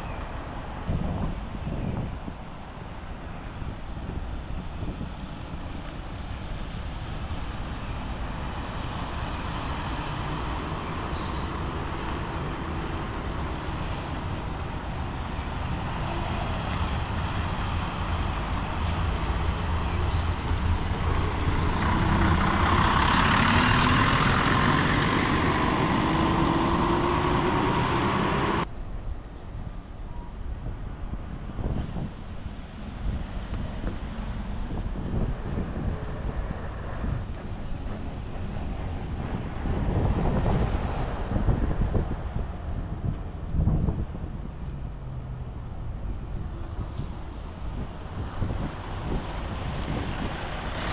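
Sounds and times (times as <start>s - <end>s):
bus diesel engines driving past: 0.0s - 50.9s
faint traffic: 0.0s - 50.9s
wind: 0.0s - 50.9s.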